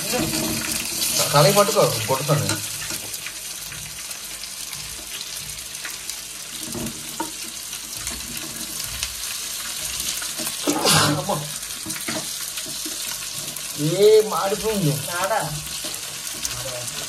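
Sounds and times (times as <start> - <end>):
metal spoon scraping pan: 0.0 - 3.2
fish sizzling in oil: 0.0 - 17.0.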